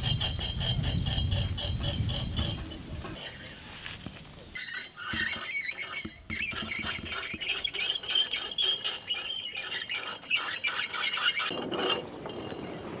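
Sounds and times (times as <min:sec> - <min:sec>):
utensils scraping and clattering: 0:00.0 - 0:03.8, 0:04.6 - 0:12.7.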